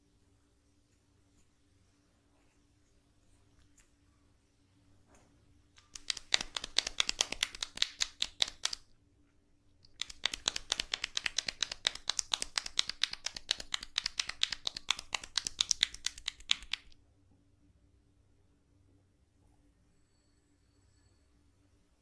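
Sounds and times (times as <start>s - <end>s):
hands rubbing face and hair: 5.8s - 8.9s, 9.9s - 17.0s.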